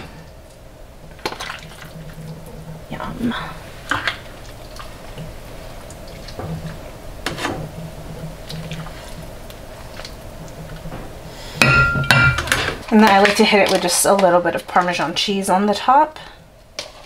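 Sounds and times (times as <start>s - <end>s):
soup dripping and splashing: 0.3s - 2.7s, 3.8s - 6.8s, 8.2s - 10.9s
ladle clattering against dishes: 11.6s - 14.3s.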